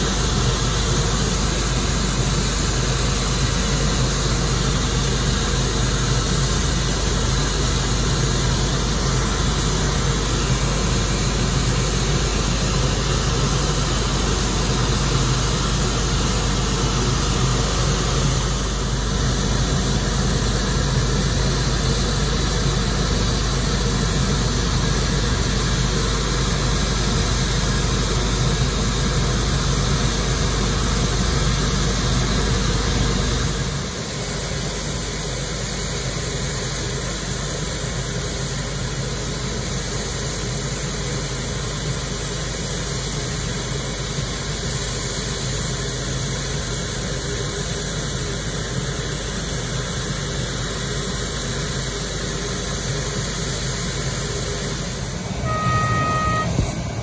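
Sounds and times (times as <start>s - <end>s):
aircraft machinery noise with hiss: 0.0s - 57.0s.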